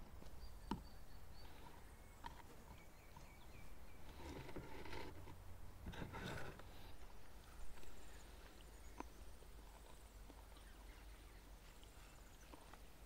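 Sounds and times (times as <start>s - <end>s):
rustling or scraping: 4.0s - 8.0s.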